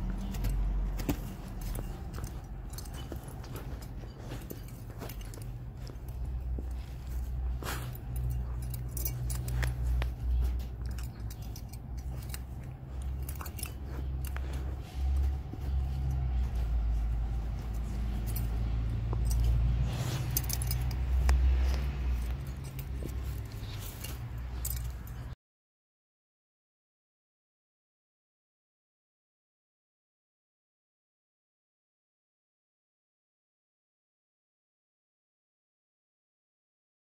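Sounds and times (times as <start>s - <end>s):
dog chewing plush toy: 0.0s - 25.1s
collar jingling: 0.0s - 25.4s.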